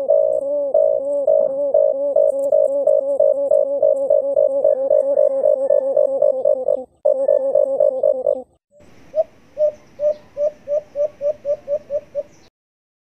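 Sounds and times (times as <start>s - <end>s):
dove cooing: 0.0s - 12.5s
faint hiss: 8.8s - 12.5s.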